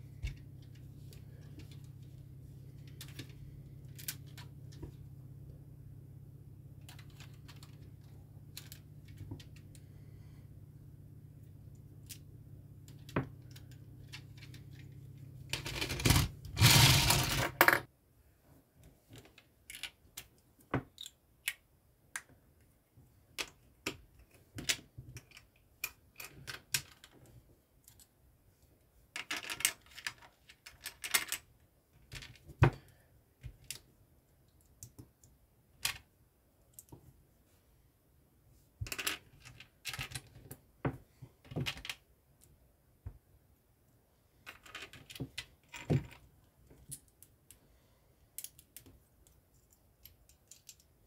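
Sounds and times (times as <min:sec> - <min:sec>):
plastic bricks clicking and clattering: 0:15.5 - 0:17.9, 0:29.2 - 0:31.4, 0:38.8 - 0:40.6, 0:48.4 - 0:51.0.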